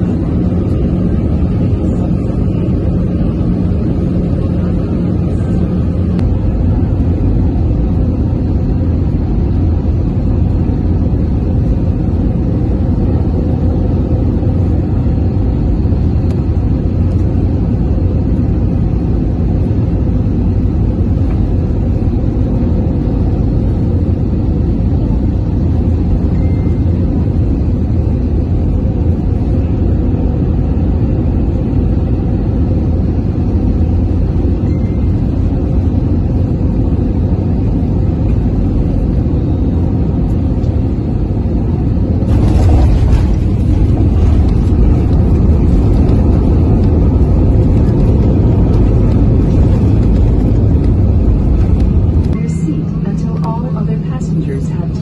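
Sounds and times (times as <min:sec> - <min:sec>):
airliner cabin engine rumble: 0:00.0 - 0:55.0.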